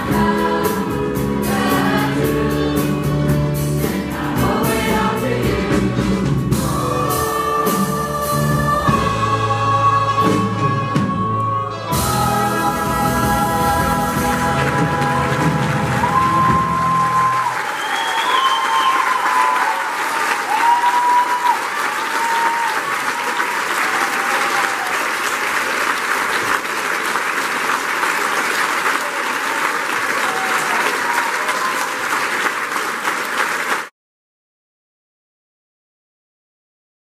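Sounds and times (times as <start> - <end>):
audience applauding: 14.1 - 33.9
people cheering: 14.7 - 33.9.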